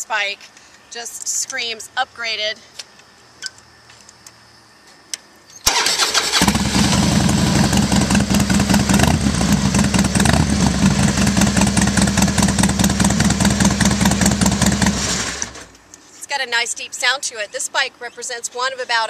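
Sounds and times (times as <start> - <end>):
electric starter cranking: 5.6 - 8.3, 14.2 - 15.8
motorcycle engine idling: 6.4 - 15.7.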